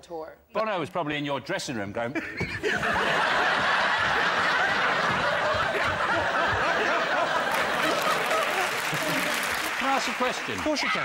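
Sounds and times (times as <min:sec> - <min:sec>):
audience laughing: 0:02.2 - 0:10.7.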